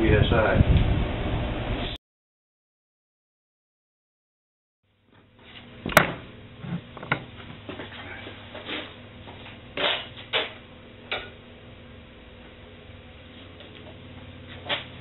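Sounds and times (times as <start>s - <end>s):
steady low hum: 4.9s - 15.0s.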